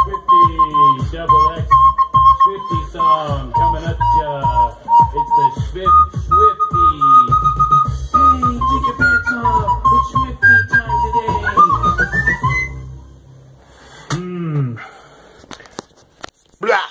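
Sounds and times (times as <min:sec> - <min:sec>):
backing beat with bass and drums: 0:00.0 - 0:12.8
recorder melody: 0:00.0 - 0:13.1.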